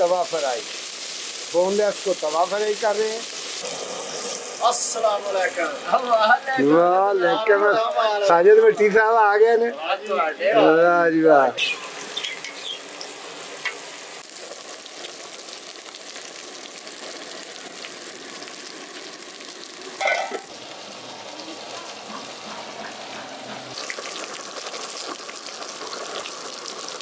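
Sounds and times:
chicken sizzling in oil: 0.0s - 7.2s, 11.6s - 27.0s
tongs stirring on griddle: 20.0s - 20.6s.

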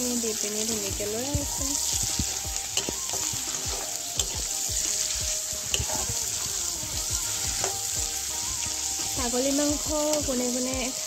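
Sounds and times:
meat sizzling in a frying pan: 0.0s - 11.0s
metal spatula scraping pan: 1.9s - 6.4s.

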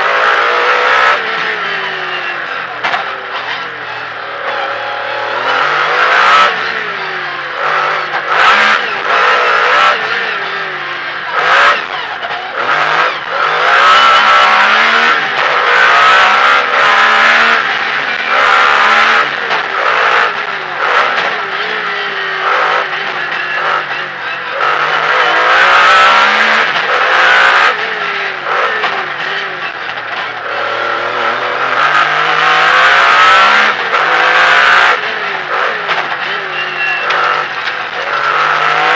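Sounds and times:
rally car engine revving hard: 0.0s - 38.9s.

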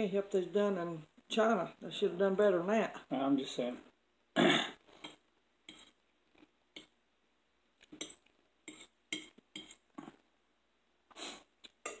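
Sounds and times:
fork clinking and scraping plate: 5.0s - 6.0s, 7.9s - 9.8s, 11.8s - 12.0s.

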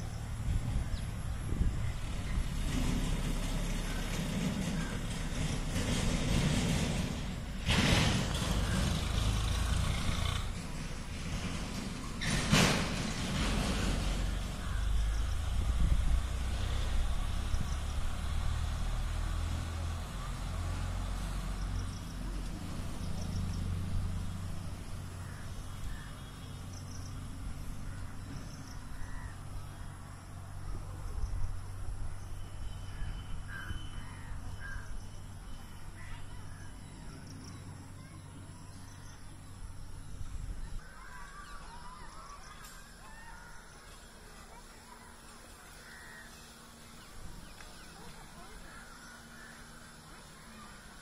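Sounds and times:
wind rumble on microphone: 0.0s - 3.4s, 14.6s - 18.2s
birds calling: 0.0s - 15.8s, 21.5s - 31.6s, 32.2s - 51.0s.

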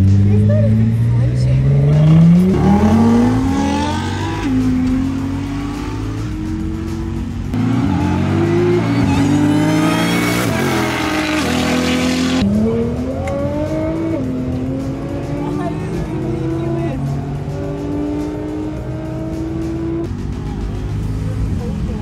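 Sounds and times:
car engines at full throttle: 0.0s - 22.0s.

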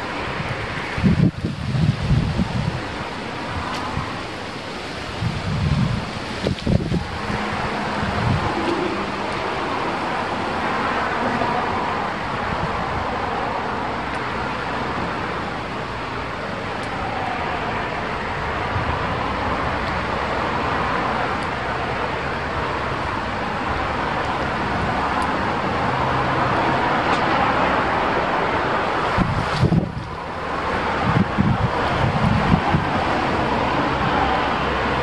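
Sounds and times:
strong wind blowing: 0.0s - 35.0s.

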